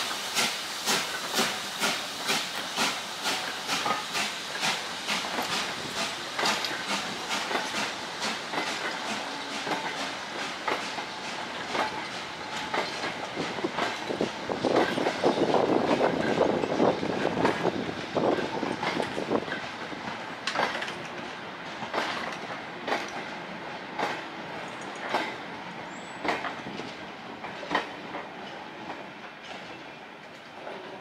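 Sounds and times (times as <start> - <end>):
steam locomotive chuffing: 0.0 - 29.8
freight wagons clacking over rail joints: 1.0 - 31.0.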